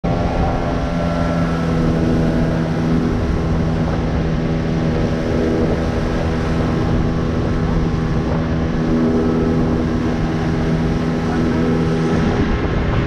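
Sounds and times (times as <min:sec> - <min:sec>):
outboard motor humming: 0:00.0 - 0:13.0
rough low rumble: 0:00.0 - 0:13.0.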